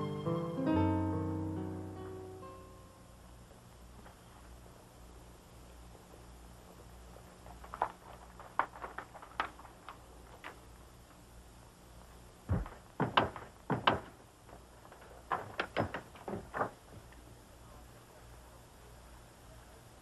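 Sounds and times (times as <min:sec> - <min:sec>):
faint steady hum: 0:00.0 - 0:20.0
wooden door knocks and thumps: 0:12.5 - 0:14.2, 0:15.3 - 0:16.8
footsteps: 0:12.5 - 0:17.2.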